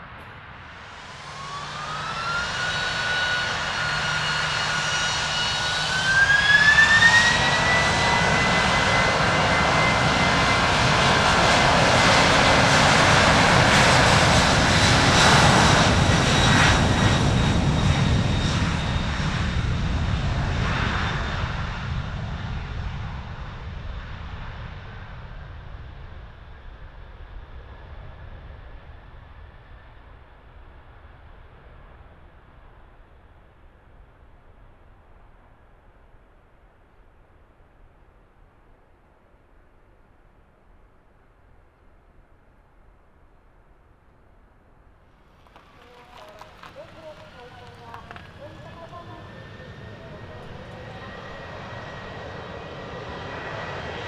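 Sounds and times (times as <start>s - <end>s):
jet roar: 0.0s - 24.8s, 45.3s - 54.0s
jet engines spooling up whine: 0.0s - 28.6s, 45.2s - 54.0s.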